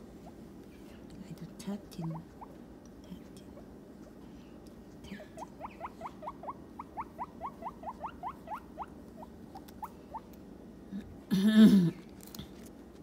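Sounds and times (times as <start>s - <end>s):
guinea pig squeaking: 2.0s - 2.6s, 5.4s - 10.2s.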